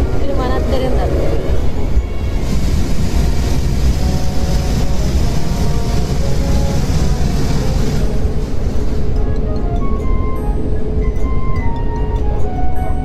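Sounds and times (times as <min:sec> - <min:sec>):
car wash machine rumble: 0:00.0 - 0:10.0.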